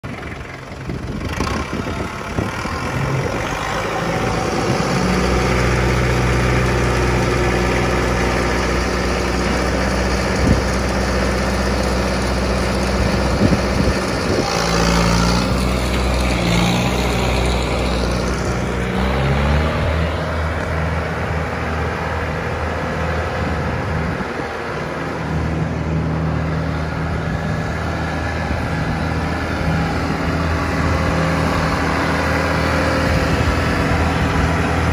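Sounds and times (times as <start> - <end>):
tractor diesel engine running: 0.0 - 34.9.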